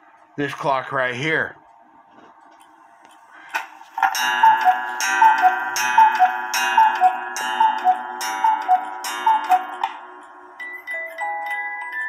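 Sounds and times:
steady held chord: 4.0 - 11.6
cuckoo clock calls: 4.0 - 12.0.

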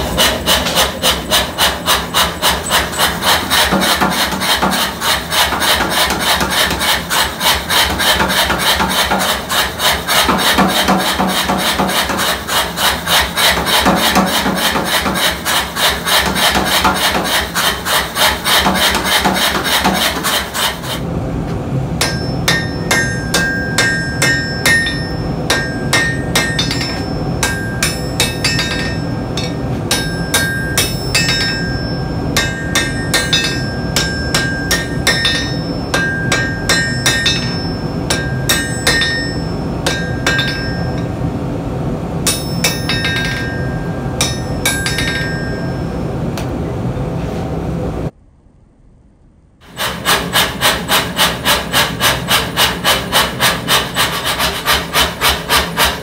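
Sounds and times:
power hammer pounding steel: 0.0 - 21.0, 22.0 - 41.1, 42.2 - 45.8, 49.6 - 56.0
steady low hum: 0.0 - 56.0
hand hammer ringing on anvil: 22.0 - 41.1, 42.2 - 46.0.

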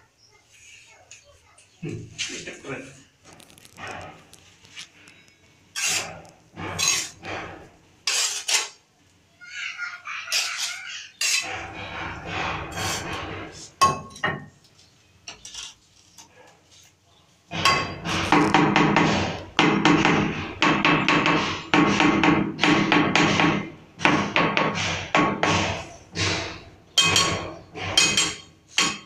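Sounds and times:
trowel scraping mortar on tile: 5.7 - 8.8, 10.3 - 13.8, 17.6 - 19.6
loud tapping: 17.5 - 29.0.

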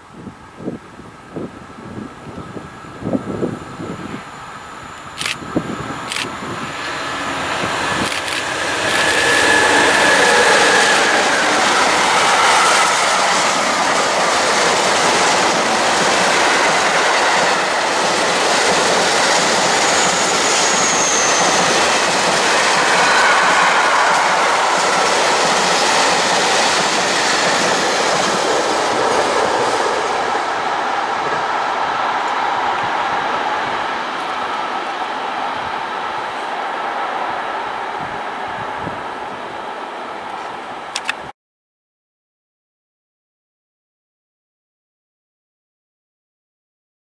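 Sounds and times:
train wheels rumbling on rail: 5.0 - 41.2.

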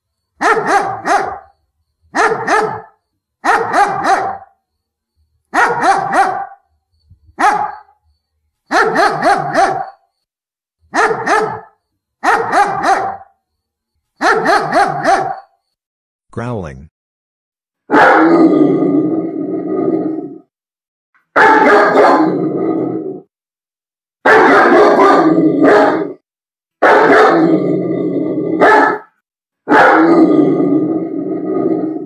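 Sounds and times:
dog barking angrily: 0.4 - 1.5, 2.1 - 4.5, 5.5 - 6.6, 7.4 - 7.9, 8.7 - 10.0, 10.9 - 13.3, 14.2 - 15.5, 17.9 - 18.6, 21.3 - 22.6, 24.2 - 26.2, 26.8 - 27.6, 28.5 - 30.4.

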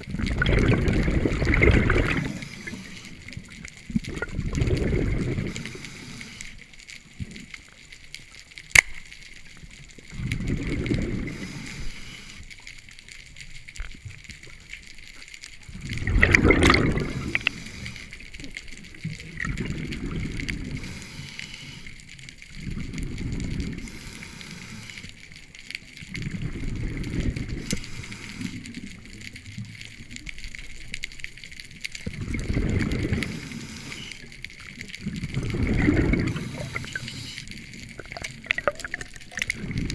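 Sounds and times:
regulator bubbles underwater: 0.0 - 7.8, 9.5 - 12.3, 15.5 - 39.9
faint steady hiss: 0.0 - 39.9
sharp click: 8.7 - 9.0.

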